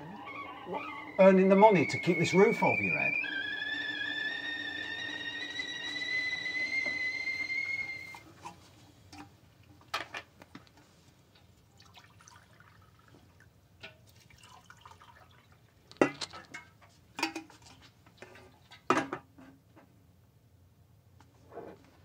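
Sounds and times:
water dripping: 11.4 - 16.0.

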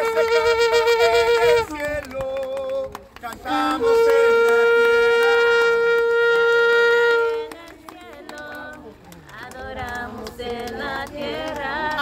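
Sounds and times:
wind instrument long note: 0.0 - 2.0, 3.5 - 7.8.

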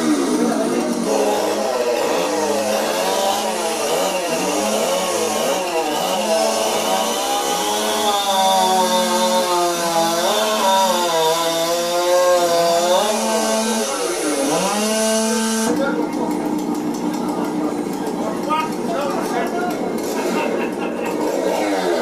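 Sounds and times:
chainsaw cutting wood: 0.0 - 22.0.

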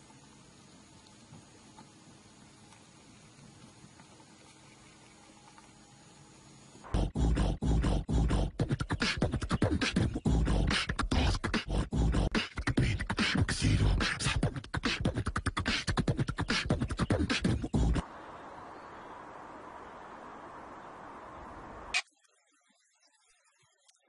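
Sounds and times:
beatboxing: 6.9 - 18.0.

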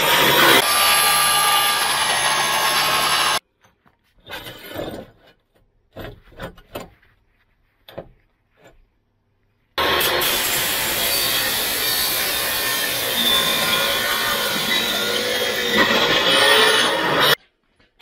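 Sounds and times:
power grinder grinding metal: 0.0 - 3.4, 9.8 - 17.4
short scrapes and knocks: 3.7 - 9.1.

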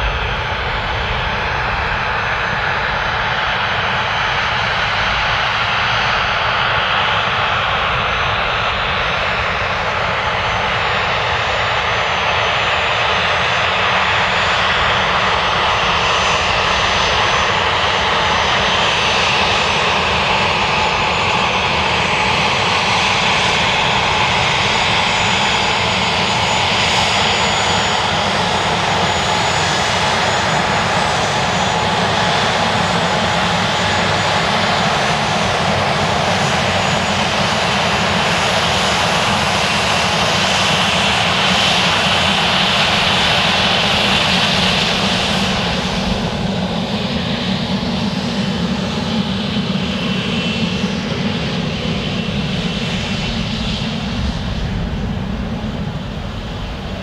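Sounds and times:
jet engines running: 0.0 - 57.0
high turbine whine: 23.5 - 57.0.

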